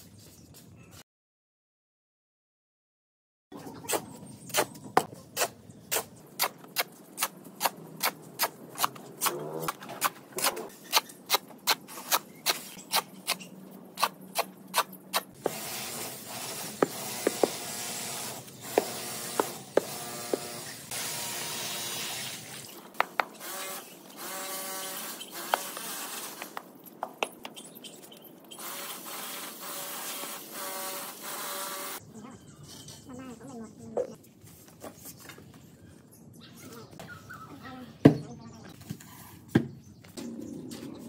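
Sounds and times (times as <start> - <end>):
shovel scraping concrete: 3.9 - 21.0
shovel working wet mortar: 3.9 - 22.8.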